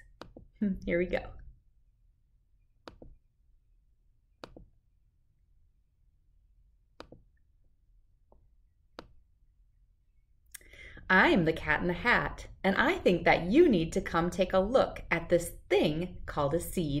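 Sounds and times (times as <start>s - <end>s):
computer mouse clicks: 2.8s - 3.2s, 4.4s - 4.7s, 7.0s - 7.4s.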